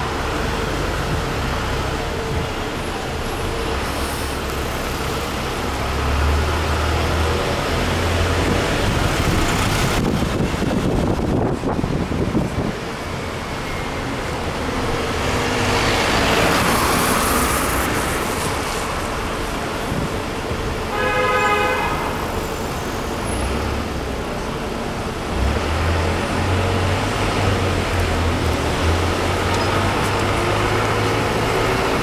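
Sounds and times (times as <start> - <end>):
cars passing on city street: 0.0 - 32.0
car horn: 20.9 - 22.3.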